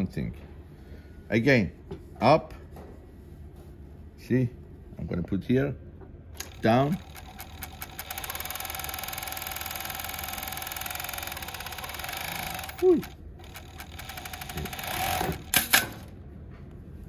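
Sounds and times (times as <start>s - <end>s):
industrial sewing machine stitching: 6.4s - 16.1s
sewing machine stopping sound: 6.4s - 16.1s.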